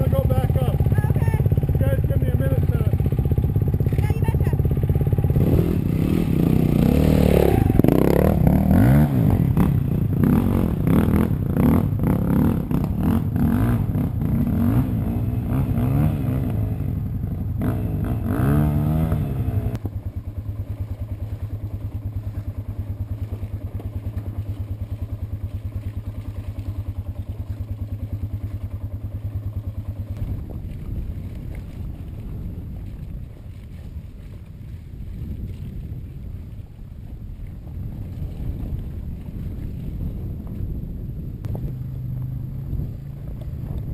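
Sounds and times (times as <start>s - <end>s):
motorcycle engine revving: 0.0s - 32.6s, 38.6s - 43.9s
second dirt bike engine: 0.0s - 32.6s.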